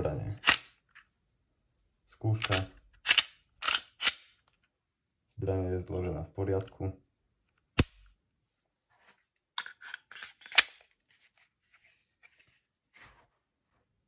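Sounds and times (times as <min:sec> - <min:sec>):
pistol metallic clicks: 0:02.4 - 0:04.3
pistol slide noise: 0:02.4 - 0:04.3.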